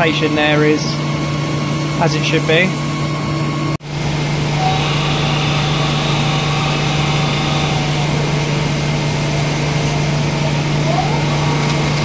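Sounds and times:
machine hum: 0:02.9 - 0:12.0
coolant spray hiss: 0:03.9 - 0:12.0.

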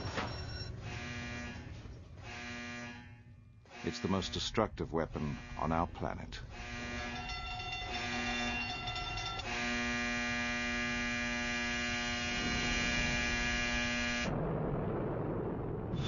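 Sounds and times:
electrical hum: 0:00.0 - 0:14.4
low rumble: 0:04.7 - 0:16.0.

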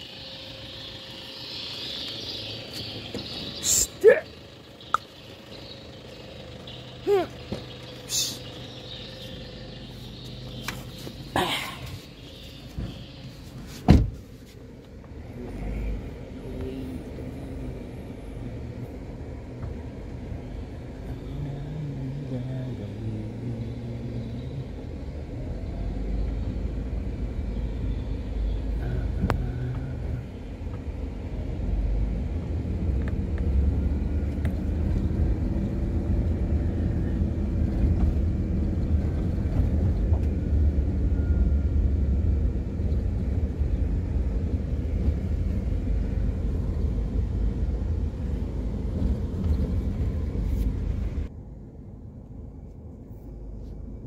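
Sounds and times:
car engine rumbling: 0:00.0 - 0:54.0
road noise: 0:00.0 - 0:54.0
car door shutting: 0:13.7 - 0:14.3.

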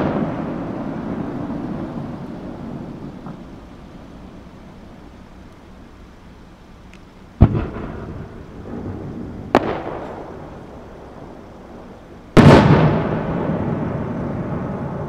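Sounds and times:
rumbling tail: 0:00.0 - 0:06.4, 0:07.4 - 0:15.0
firework shell bangs: 0:07.4 - 0:10.6.

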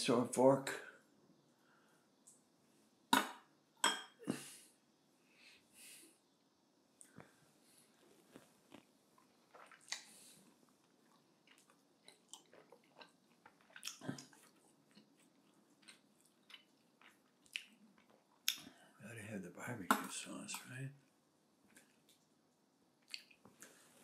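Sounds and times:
person chewing: 0:08.1 - 0:18.7, 0:23.0 - 0:23.4
lip smacks and mouth clicks: 0:08.3 - 0:10.2, 0:10.8 - 0:18.7, 0:23.0 - 0:23.5.

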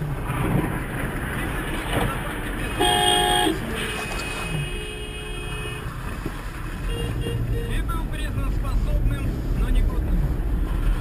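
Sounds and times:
road and engine noise: 0:00.0 - 0:11.0
car horn honking: 0:02.6 - 0:06.0, 0:06.8 - 0:07.8.

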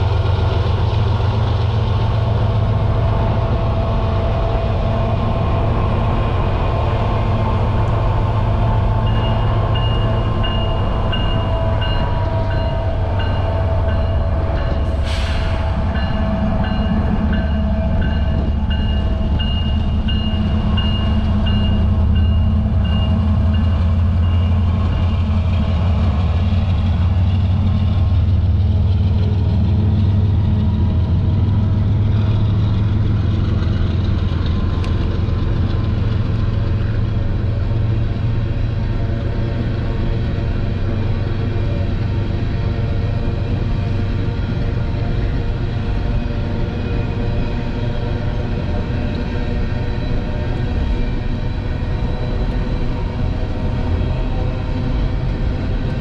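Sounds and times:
diesel locomotives droning: 0:00.0 - 0:56.0
crossing bell dinging: 0:09.0 - 0:15.0, 0:15.8 - 0:25.3.

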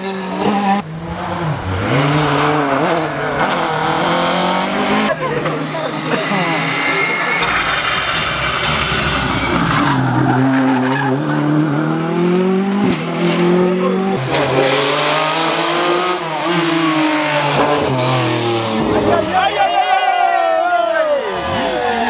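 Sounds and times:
car engine revving: 0:00.0 - 0:19.4
tyres sliding: 0:02.2 - 0:11.5.

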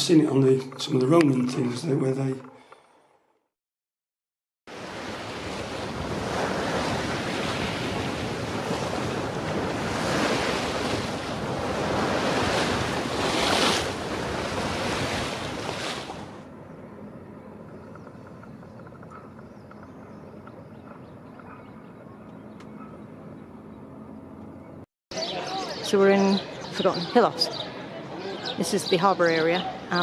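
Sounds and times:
sea water rushing past hull: 0:04.7 - 0:16.5
wind buffeting microphone: 0:05.2 - 0:23.1.

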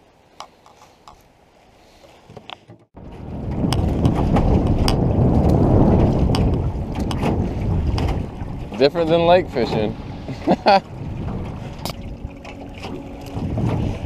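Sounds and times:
water slapping against canoe: 0:02.1 - 0:14.0
wind buffeting microphone: 0:02.9 - 0:14.0.

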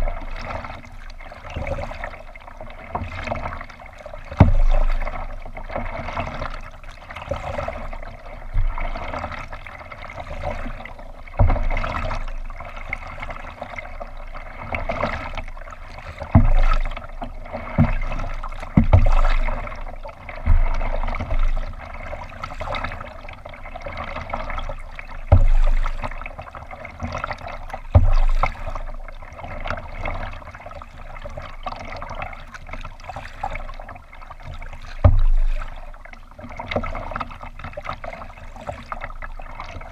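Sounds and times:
water splashing along hull: 0:00.0 - 0:39.9
dull low thumps: 0:04.4 - 0:05.2, 0:16.3 - 0:17.2, 0:17.8 - 0:22.3, 0:25.2 - 0:26.2, 0:27.8 - 0:29.0, 0:35.0 - 0:35.8.

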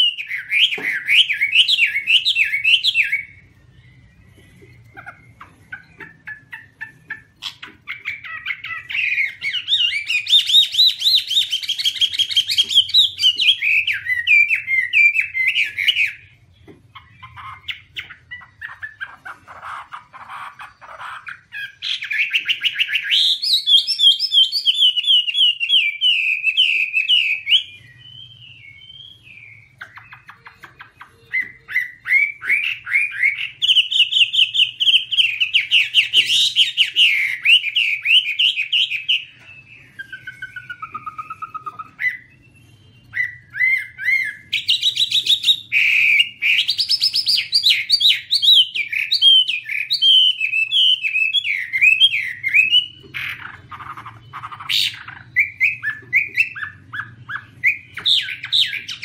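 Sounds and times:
bird singing whistled notes: 0:00.0 - 0:16.4, 0:21.3 - 0:59.0.

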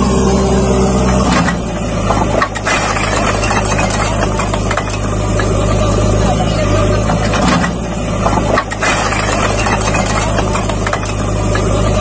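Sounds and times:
diesel engine working hard: 0:00.0 - 0:12.0.

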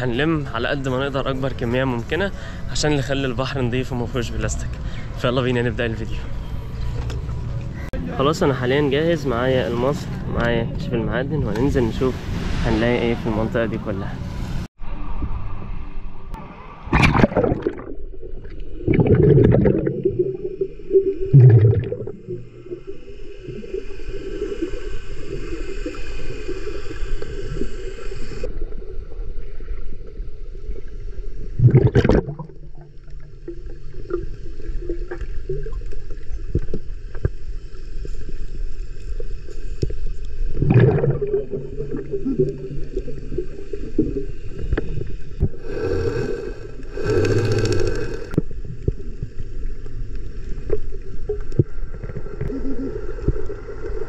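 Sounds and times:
underwater rumble: 0:14.8 - 0:54.0.

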